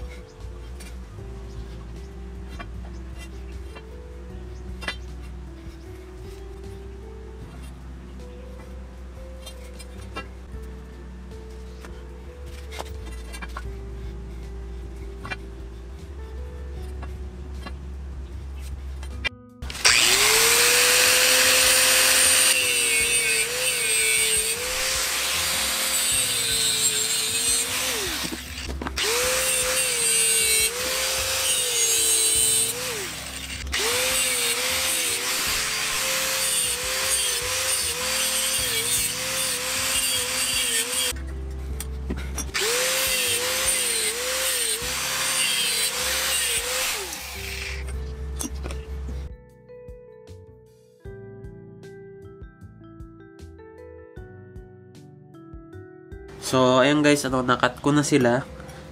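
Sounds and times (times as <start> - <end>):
angle grinder cutting steel: 19.6 - 41.2, 42.4 - 48.5.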